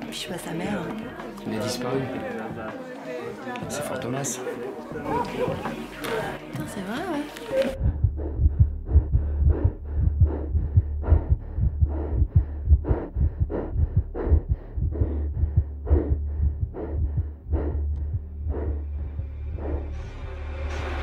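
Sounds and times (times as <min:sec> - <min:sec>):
deep drone: 0:07.7 - 0:21.0
muffled low throbbing pulse: 0:07.7 - 0:21.0.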